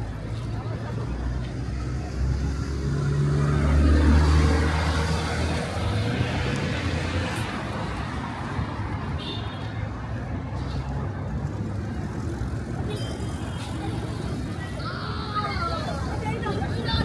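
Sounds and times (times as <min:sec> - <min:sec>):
busy road noise: 0:00.0 - 0:17.0
vehicle engine passing: 0:01.8 - 0:08.5.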